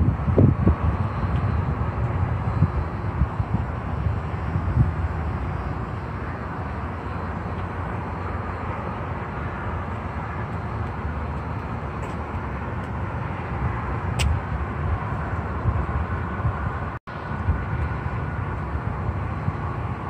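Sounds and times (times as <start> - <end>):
car engine and road rumble: 0.0 - 20.0
sharp click: 14.2 - 14.4.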